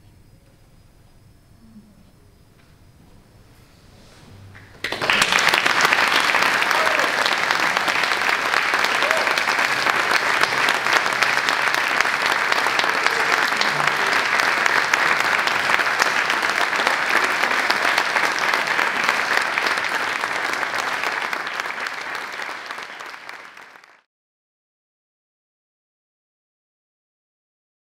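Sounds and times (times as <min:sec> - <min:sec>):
audience applause: 0:04.5 - 0:24.1.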